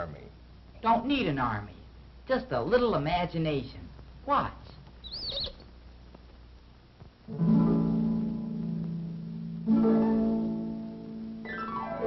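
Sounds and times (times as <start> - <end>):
plucked string and harp chords: 7.3 - 12.0.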